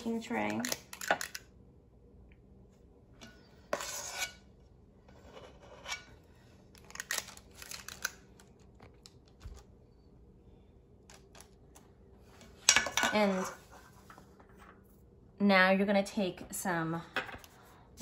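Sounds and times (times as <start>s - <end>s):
metal scoop scraping steel bowl: 3.7s - 4.5s.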